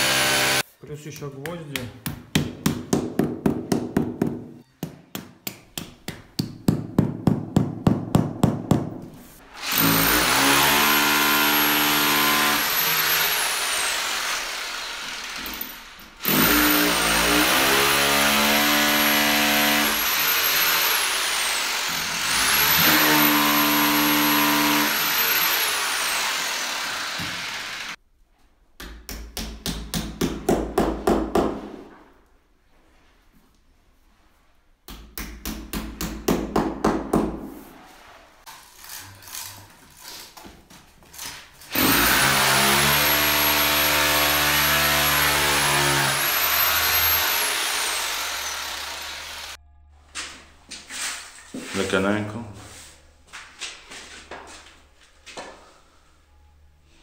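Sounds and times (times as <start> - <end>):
hammer blows driving nails: 0.0 - 0.6, 1.2 - 27.9, 28.8 - 31.8, 34.9 - 37.5
electric drill spinning: 9.5 - 17.6, 19.2 - 28.0, 41.7 - 49.6.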